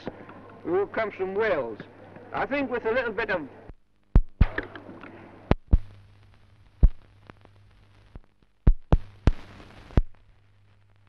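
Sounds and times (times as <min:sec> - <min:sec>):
faint hiss: 0:00.0 - 0:11.0
film clicks and pops: 0:04.1 - 0:10.2.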